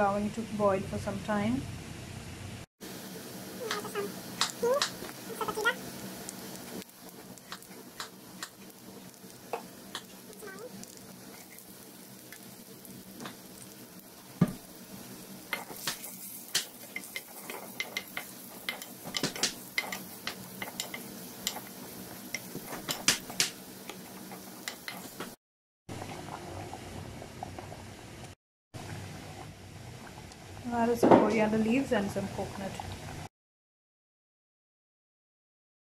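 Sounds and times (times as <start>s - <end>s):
food sizzling in hot oil: 1.8s - 33.2s
steel spoon clicking on pan: 15.5s - 21.7s, 24.6s - 25.1s.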